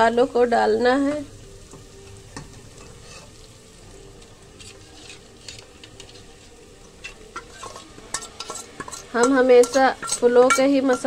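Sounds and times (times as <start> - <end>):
paste sizzling in hot oil: 0.6 - 11.0
steel spoon scraping pot: 2.8 - 3.4, 4.6 - 11.0.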